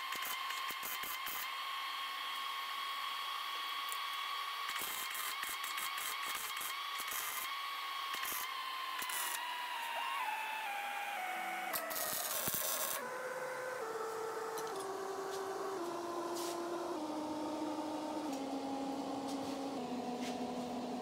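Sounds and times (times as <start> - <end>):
steady high whine: 9.5 - 21.0
welder arc crackling: 11.7 - 13.0.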